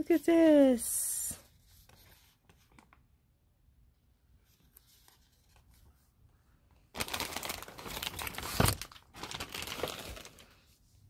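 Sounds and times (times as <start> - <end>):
plastic sleeve crinkling: 6.9 - 10.6.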